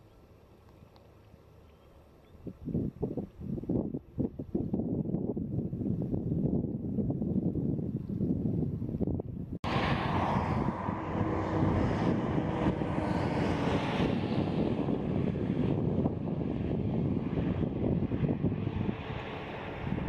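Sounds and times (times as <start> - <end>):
faint distant engine drone: 0.0 - 4.2, 9.6 - 20.0
wind buffeting microphone: 2.2 - 20.0.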